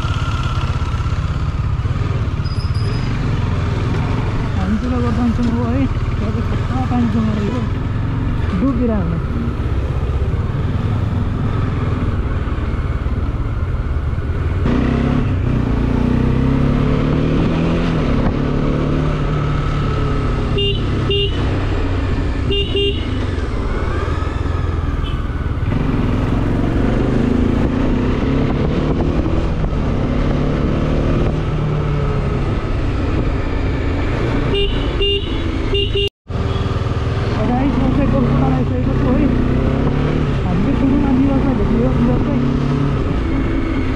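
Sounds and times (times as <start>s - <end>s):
motorcycle engine running: 0.0s - 43.9s
vehicle horn beeps: 20.5s - 21.5s, 22.4s - 23.2s, 34.5s - 36.6s.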